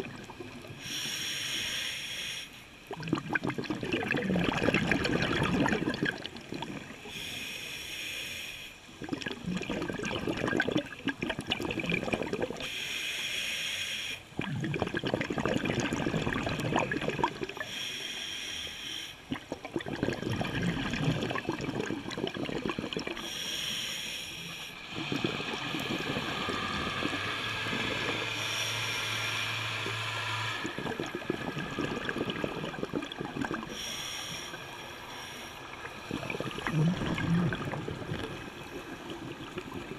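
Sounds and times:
exhaled air bubbling: 0:00.0 - 0:01.0, 0:02.8 - 0:07.3, 0:08.9 - 0:12.7, 0:14.3 - 0:17.9, 0:19.2 - 0:29.9, 0:30.5 - 0:39.9
regulator hissing inhale: 0:00.7 - 0:02.8, 0:07.0 - 0:08.9, 0:12.6 - 0:14.3, 0:17.6 - 0:19.3, 0:23.1 - 0:24.9, 0:28.0 - 0:30.0, 0:33.6 - 0:36.1.

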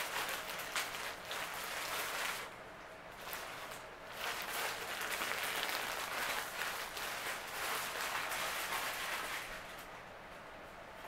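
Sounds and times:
packaging rustling and crinkling: 0:00.0 - 0:02.5, 0:03.2 - 0:09.9.

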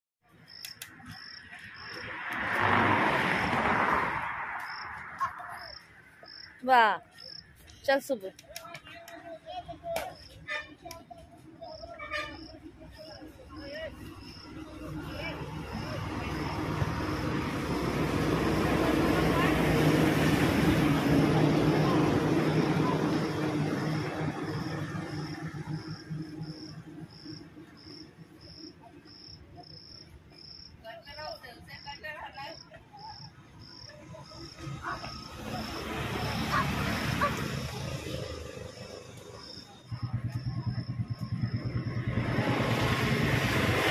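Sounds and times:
insect chirps: 0:00.4 - 0:07.5, 0:11.6 - 0:17.9, 0:22.5 - 0:42.4
vehicle passing: 0:01.0 - 0:07.7, 0:11.7 - 0:28.7, 0:31.1 - 0:43.9.

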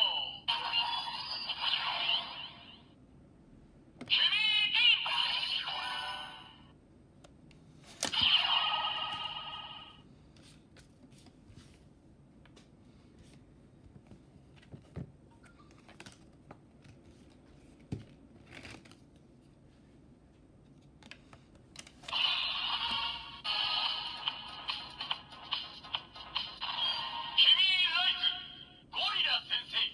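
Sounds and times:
toy electronic sound effect: 0:00.0 - 0:02.9, 0:04.1 - 0:06.5, 0:08.1 - 0:10.0, 0:22.1 - 0:28.3.

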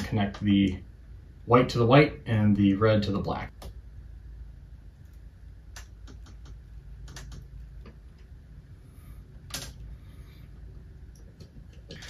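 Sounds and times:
wires rustling: 0:04.7 - 0:12.0.

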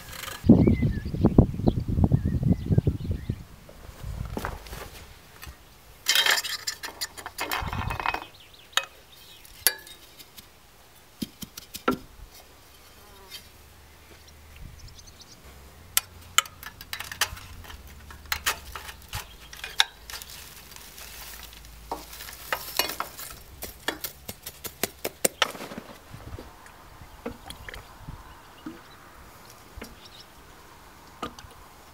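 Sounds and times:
metal scraping: 0:06.0 - 0:08.4, 0:16.0 - 0:24.3.

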